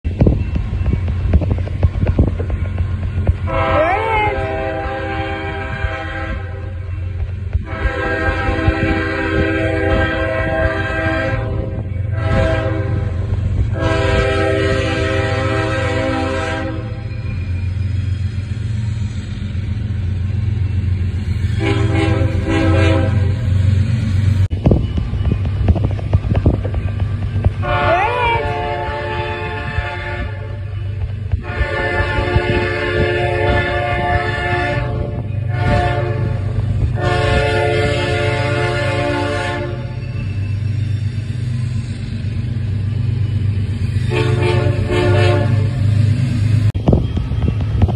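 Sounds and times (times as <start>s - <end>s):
locomotive air horn blasts: 3.4s - 6.9s, 7.6s - 17.1s, 21.5s - 23.4s, 27.6s - 40.0s, 44.0s - 45.8s.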